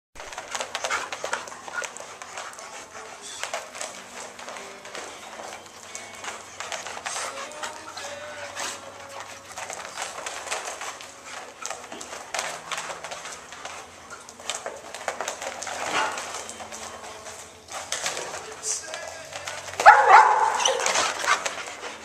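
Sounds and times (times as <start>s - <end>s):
dog claws scrabbling on rubber floor: 0.2s - 22.0s
dogs vocalizing: 0.2s - 22.0s.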